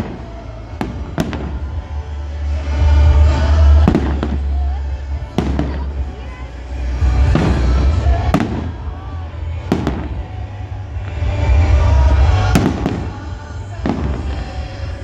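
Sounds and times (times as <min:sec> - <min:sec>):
fireworks bangs: 0:00.0 - 0:15.0
low rumble of fireworks display: 0:00.0 - 0:15.0.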